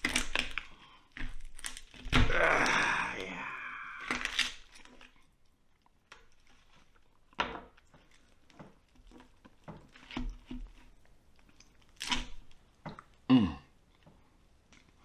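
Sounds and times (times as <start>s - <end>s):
roasted skin crackling and tearing: 0.0s - 12.7s
small knocks and clacks: 6.1s - 11.8s.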